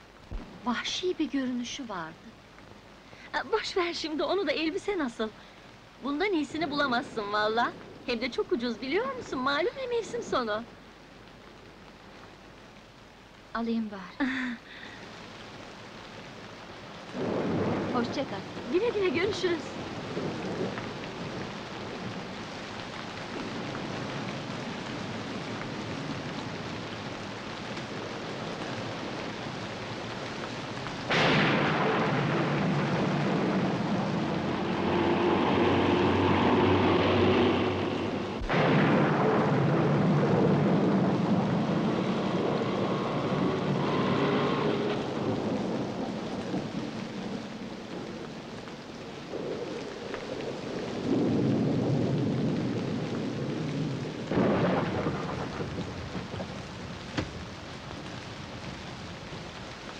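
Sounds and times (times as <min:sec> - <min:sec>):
heavy rain: 0:00.0 - 0:59.9
thunder rumbling: 0:17.1 - 0:59.9.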